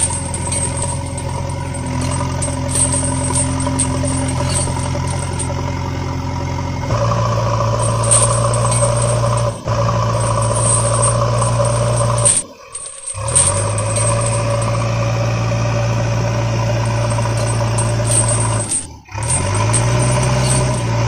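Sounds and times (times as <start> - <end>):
vehicle engine idling: 0.0 - 21.0.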